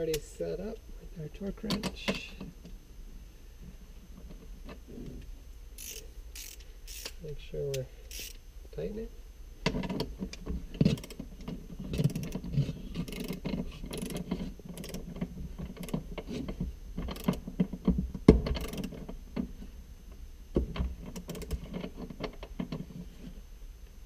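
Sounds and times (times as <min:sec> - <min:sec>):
ratcheting torque wrench clicking: 0:05.8 - 0:07.2, 0:08.1 - 0:08.4, 0:10.8 - 0:11.3, 0:11.9 - 0:15.1, 0:15.7 - 0:16.0, 0:17.0 - 0:17.4, 0:18.5 - 0:19.1, 0:21.1 - 0:21.9.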